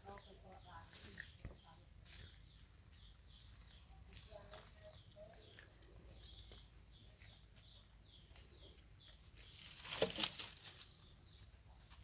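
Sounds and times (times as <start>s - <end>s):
rustling in dry leaves: 8.2s - 12.0s.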